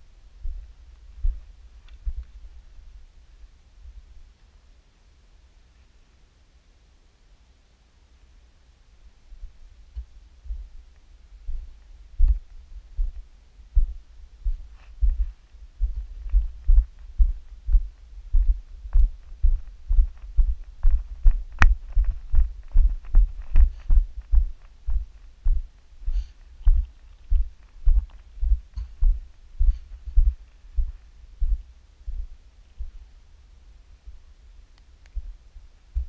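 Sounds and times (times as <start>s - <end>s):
footsteps on gravel: 14.5s - 30.9s.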